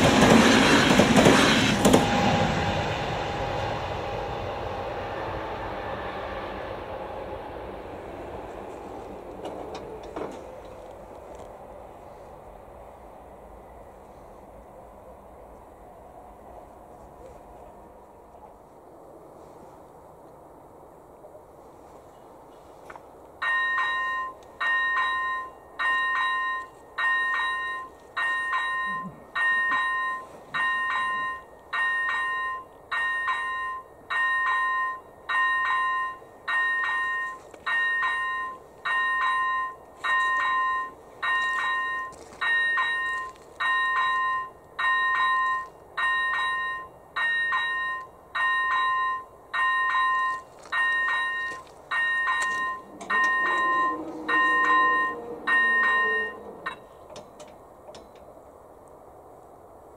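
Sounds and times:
level crossing bell dinging: 23.4s - 56.9s.

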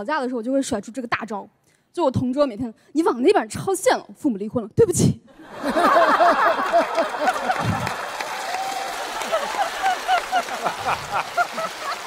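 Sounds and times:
audience laughing and applauding: 5.4s - 12.0s.

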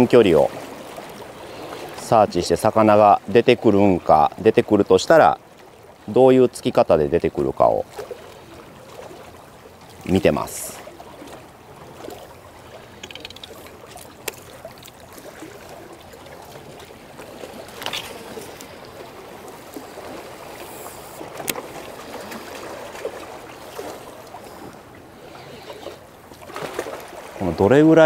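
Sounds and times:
water lapping at shore: 0.0s - 28.0s
fishing reel winding: 13.0s - 13.6s.

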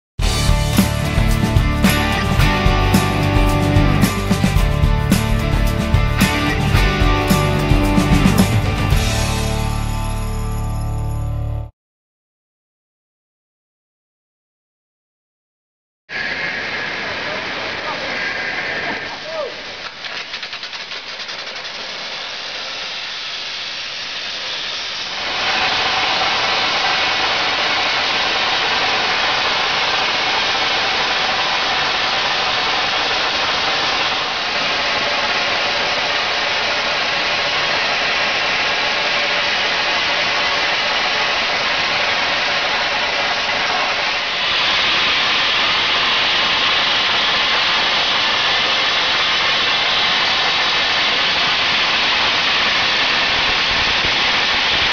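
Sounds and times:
compressed air hiss: 16.1s - 30.5s
arc torch gouging steel: 16.1s - 54.9s.

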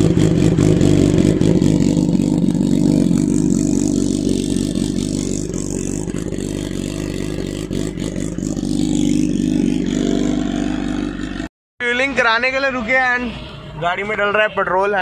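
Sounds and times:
motorcycle engine idling: 0.0s - 11.4s.

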